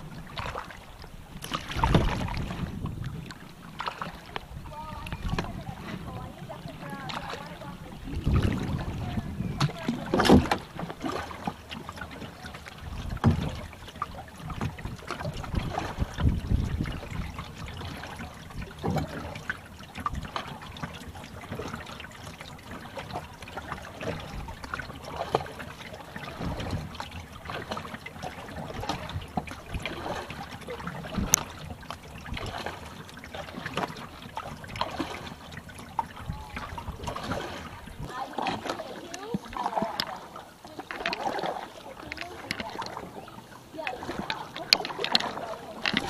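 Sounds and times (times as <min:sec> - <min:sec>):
paddle dipping in water: 0:00.0 - 0:46.0
water dripping off paddle: 0:00.0 - 0:46.0
low rumbles: 0:01.2 - 0:11.2.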